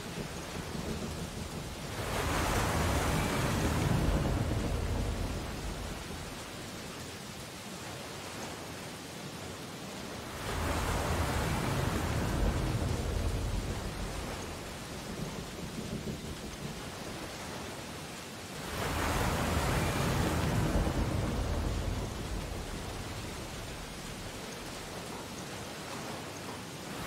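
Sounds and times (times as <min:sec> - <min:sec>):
sea waves breaking: 0:00.0 - 0:27.0.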